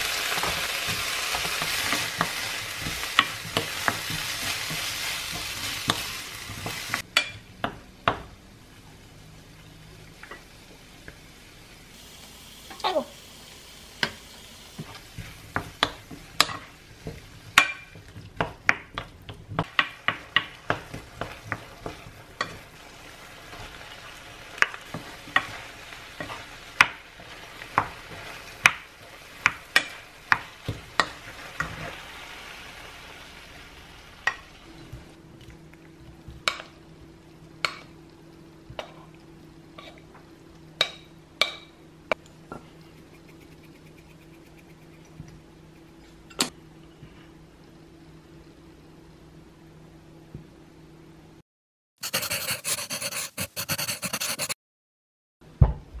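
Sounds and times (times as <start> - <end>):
food sizzling: 0.0 - 35.2, 42.2 - 46.4.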